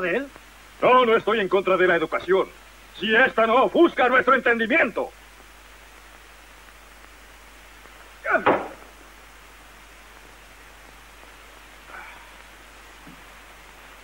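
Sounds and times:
film soundtrack hiss: 0.0 - 14.0
man's short vocal outburst: 8.2 - 8.8.

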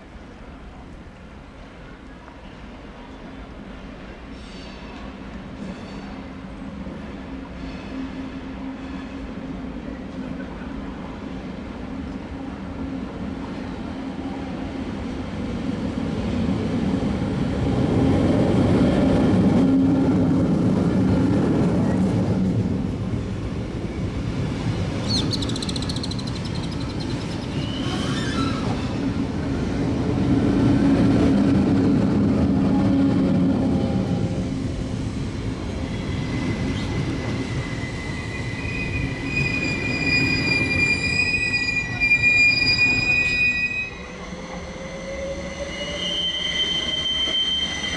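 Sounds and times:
train wheel and rail rumble: 0.0 - 47.9
train wheel squeal: 4.3 - 6.4, 7.4 - 9.5, 25.0 - 29.2, 35.7 - 47.9.

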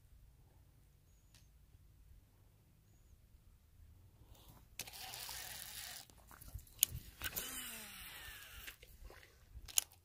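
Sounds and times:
fishing reel whirring: 4.8 - 6.1, 7.2 - 8.8.

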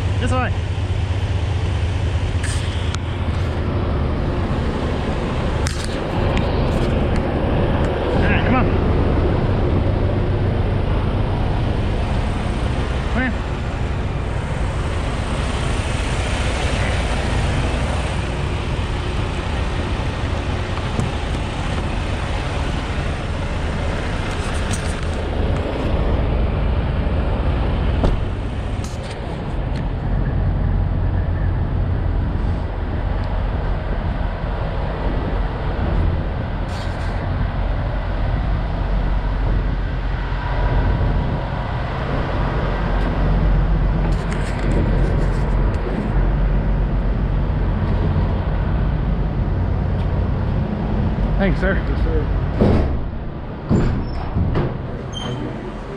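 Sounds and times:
truck engines idling: 0.0 - 55.9.

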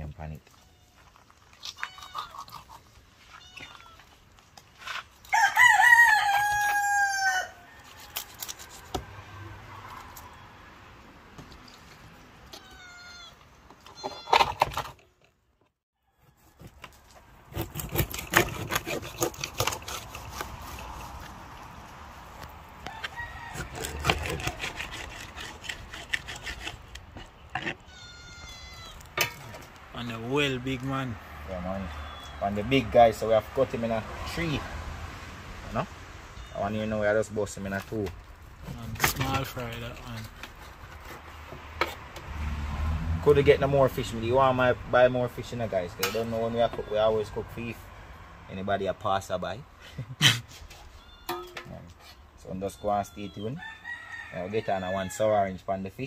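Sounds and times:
rooster crowing: 5.3 - 8.9, 22.8 - 24.6, 53.4 - 55.3.

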